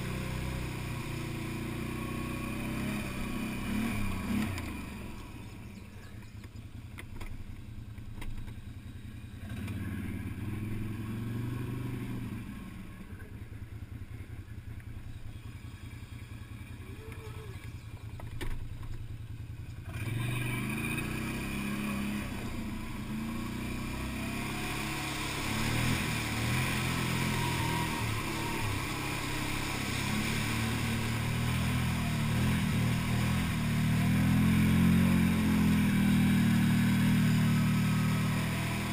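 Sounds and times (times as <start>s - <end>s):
quad engine puttering: 0.0s - 38.9s
water rushing and splashing: 19.9s - 38.9s.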